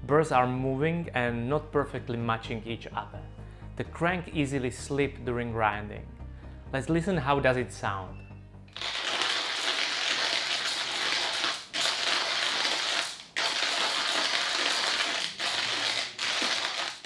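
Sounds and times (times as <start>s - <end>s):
hand grinder crunching coffee beans: 8.8s - 17.0s.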